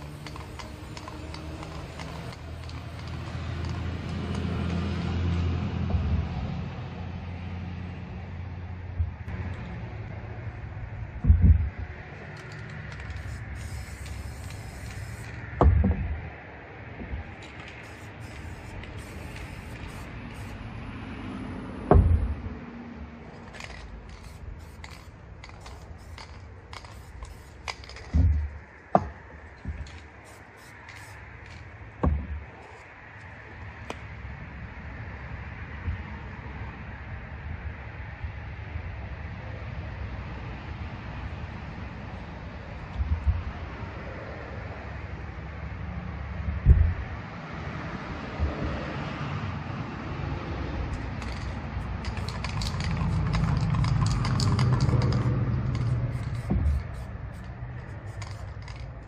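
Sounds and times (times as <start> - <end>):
spray cans clicking and rattling: 0.0 - 4.5, 12.3 - 15.4, 17.4 - 20.6, 23.4 - 28.5, 29.6 - 31.7, 51.0 - 59.0
dull thump: 15.6 - 16.2, 21.9 - 22.4, 32.0 - 32.4
spray can knocking on wood: 52.1 - 57.5.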